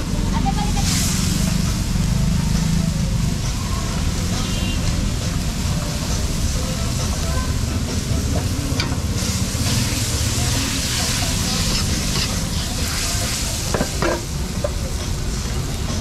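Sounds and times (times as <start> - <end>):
noodles sizzling in a wok: 0.4 - 16.0
ladle clinking against wok: 13.6 - 14.8.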